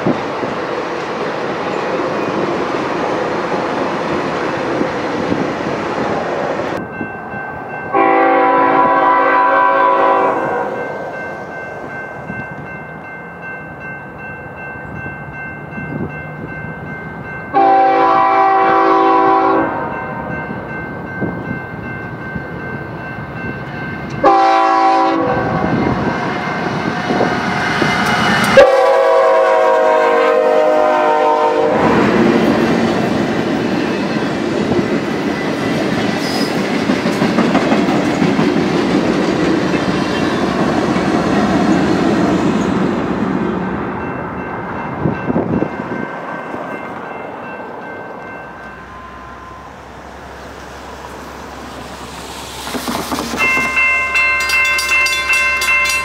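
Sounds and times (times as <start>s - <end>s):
train passing on rails: 0.0s - 56.0s
locomotive air horn blasts: 7.9s - 10.9s, 17.5s - 20.0s, 24.2s - 25.8s, 28.5s - 32.2s.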